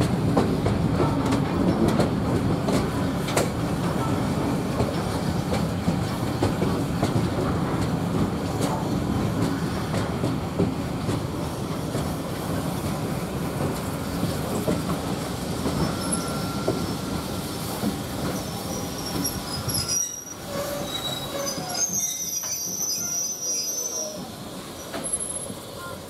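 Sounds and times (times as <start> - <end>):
train wheels rumbling over track: 0.0 - 26.0
wheel and brake squeal: 15.6 - 17.6, 18.2 - 26.0.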